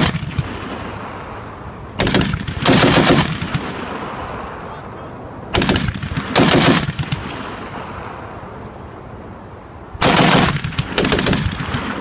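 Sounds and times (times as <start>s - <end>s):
heavy machine gun bursts: 2.0s - 3.6s, 5.5s - 7.3s, 10.0s - 12.0s
gunfire echoing: 2.0s - 4.0s, 5.5s - 7.6s, 10.0s - 12.0s.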